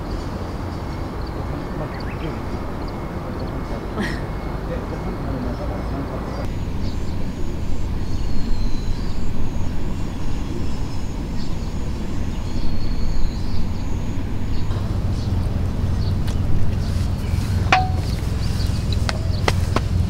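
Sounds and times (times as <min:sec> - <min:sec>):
low outdoor rumble: 0:06.5 - 0:20.0.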